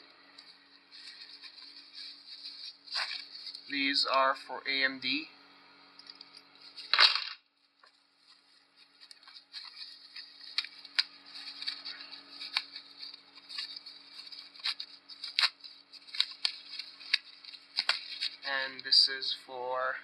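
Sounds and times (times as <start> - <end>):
plastic packaging crinkling: 0.3 - 3.8, 6.0 - 18.8
loud handling noise: 6.0 - 7.4.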